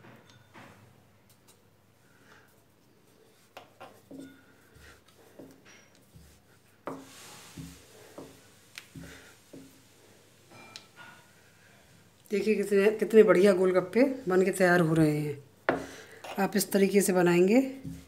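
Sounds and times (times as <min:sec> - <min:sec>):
rolling pin rubbing dough: 0:02.8 - 0:09.9, 0:17.8 - 0:18.0.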